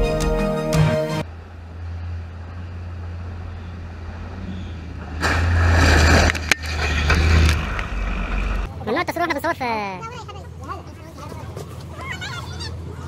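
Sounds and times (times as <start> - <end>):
heavy vehicle engine droning: 0.0 - 8.8
vehicle rushing rumble: 1.2 - 8.7.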